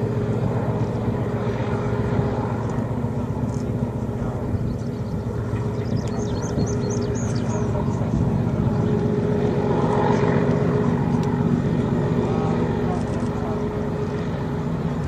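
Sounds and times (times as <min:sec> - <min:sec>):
small bird chirping: 0:04.6 - 0:07.7.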